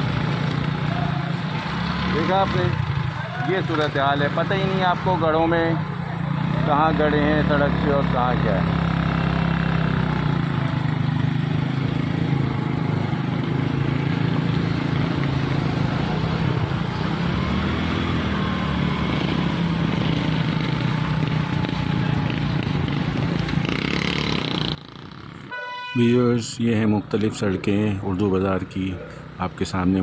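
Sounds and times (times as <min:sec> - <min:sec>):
motorcycle and car engines: 0:00.0 - 0:30.0.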